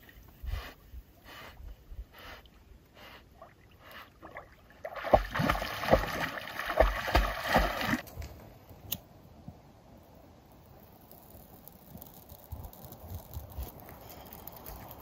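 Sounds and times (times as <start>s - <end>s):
paddle swishing water: 3.8s - 8.0s.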